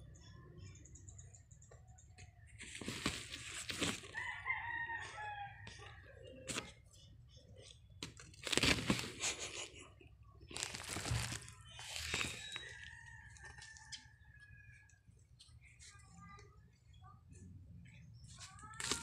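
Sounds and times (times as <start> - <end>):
rooster crowing: 4.2 - 5.8
plastic tarp crinkling: 8.4 - 9.3, 10.5 - 12.7.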